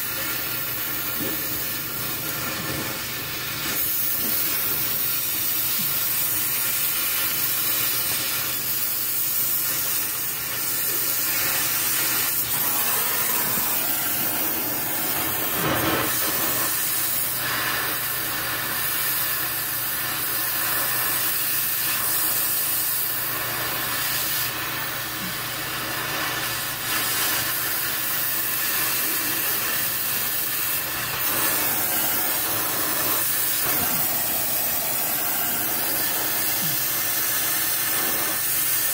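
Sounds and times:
cutting torch hissing: 0.0 - 38.9.

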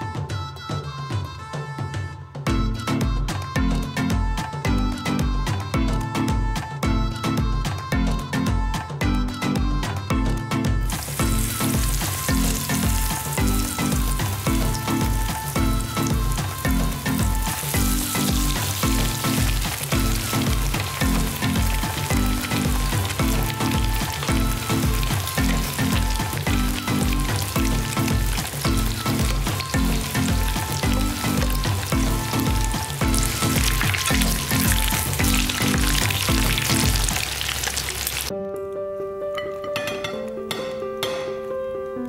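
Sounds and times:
background music with steady beat: 0.0 - 42.0
fish sizzling in frying pan: 10.9 - 38.3.

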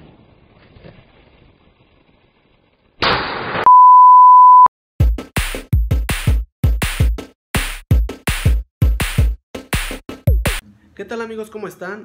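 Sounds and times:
high test-tone beep: 3.7 - 4.7
electronic music with drum-machine beat: 5.1 - 10.6.

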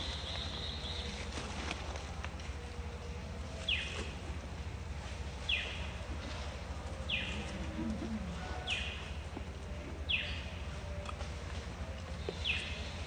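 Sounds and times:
bird calling: 0.0 - 1.4
steady low hum: 0.0 - 13.0.

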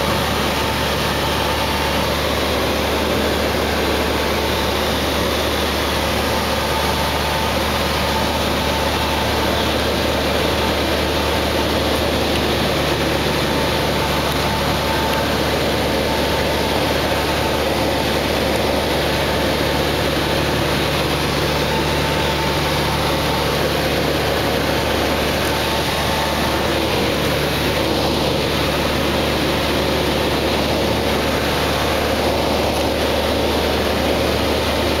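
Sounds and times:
propeller plane engine drone: 0.0 - 35.0.

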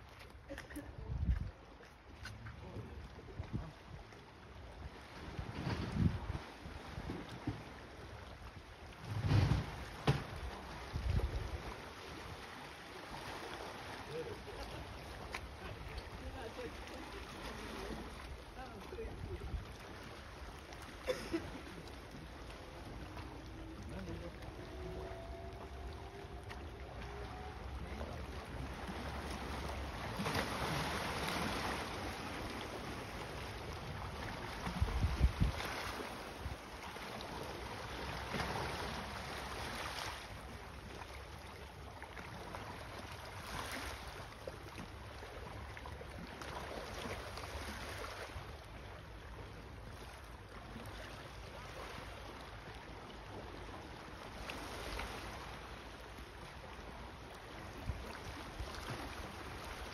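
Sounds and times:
wind on microphone: 1.0 - 1.6, 5.3 - 7.4, 9.0 - 11.6, 34.6 - 36.6.

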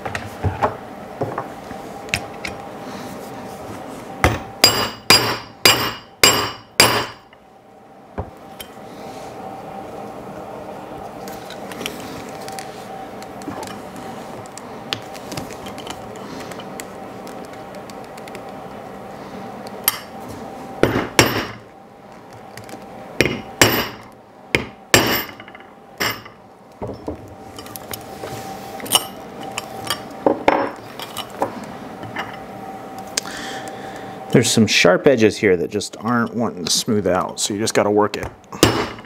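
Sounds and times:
hammer striking metal rivet setter: 4.6 - 7.2.

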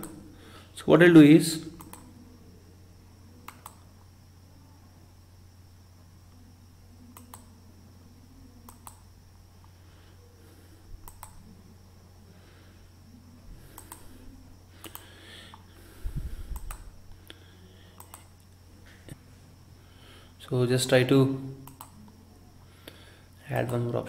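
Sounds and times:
steady low hum: 0.0 - 24.0
computer mouse button clicking: 1.8 - 2.1, 3.4 - 3.8, 7.2 - 7.5, 8.7 - 9.0, 11.0 - 11.4, 13.8 - 14.1, 14.8 - 15.6, 16.6 - 16.8, 18.0 - 18.3, 21.6 - 22.0.

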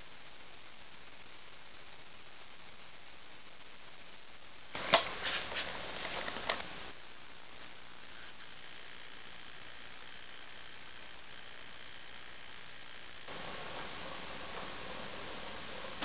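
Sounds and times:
faint high whine: 0.0 - 16.0
steady hiss: 0.0 - 16.0
tape mechanism clicking and whirring: 4.8 - 6.9.

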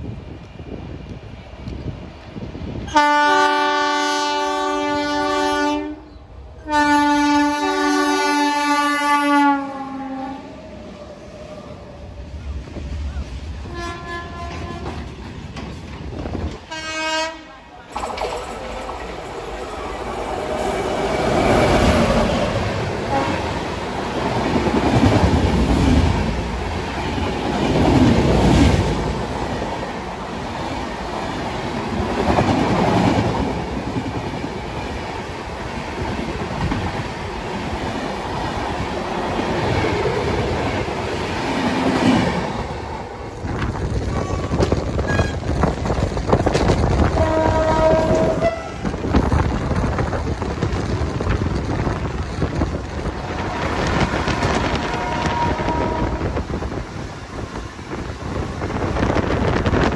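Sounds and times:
train horn: 2.9 - 10.5, 13.6 - 15.0, 16.7 - 17.6, 23.0 - 23.6, 44.2 - 45.4, 47.0 - 48.9, 53.8 - 56.4
train wheels rumbling and clattering: 10.7 - 59.9.

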